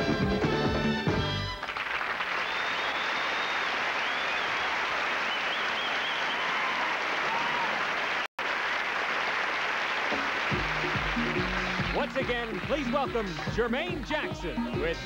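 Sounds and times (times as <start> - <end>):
audience applauding: 1.5 - 13.6
audience cheering: 1.7 - 13.4.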